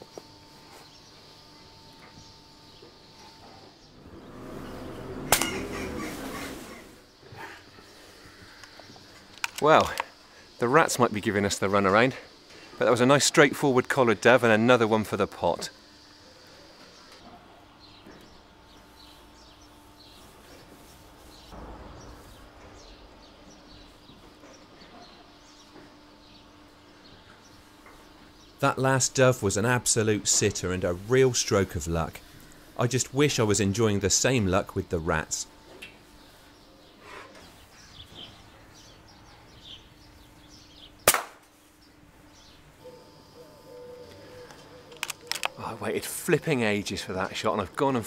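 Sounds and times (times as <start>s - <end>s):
small birds chirping: 0.0s - 48.0s
steady low hum: 0.0s - 48.0s
air rifle shot: 41.0s - 41.4s.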